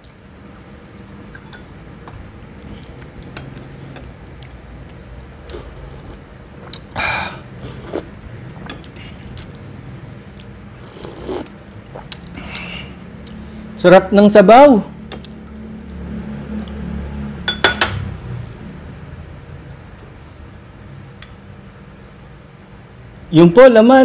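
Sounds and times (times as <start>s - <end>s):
slurping broth from spoon: 5.4s - 6.2s, 7.6s - 8.1s, 10.8s - 11.5s.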